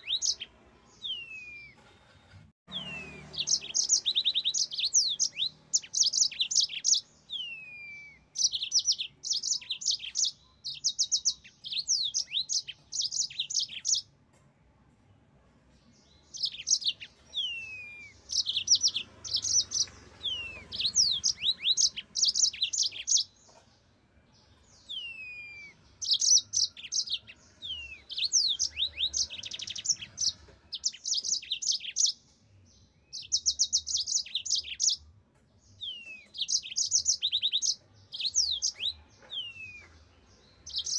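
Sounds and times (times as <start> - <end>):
canary singing trills: 0.0 - 1.9, 2.7 - 14.2, 16.0 - 40.9.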